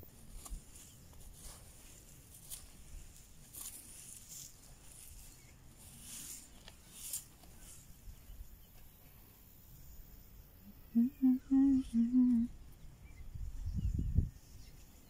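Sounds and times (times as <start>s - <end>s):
fingers scraping through gravelly soil: 0.0s - 8.4s
low hum pulses: 10.6s - 14.4s.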